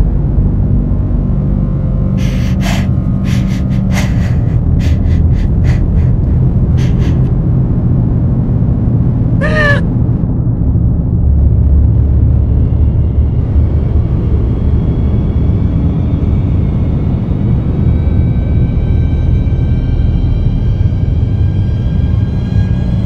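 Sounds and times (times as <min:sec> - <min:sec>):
low dark ambient drone: 0:00.0 - 0:23.0
short wavering cry: 0:02.2 - 0:07.3, 0:09.4 - 0:09.9.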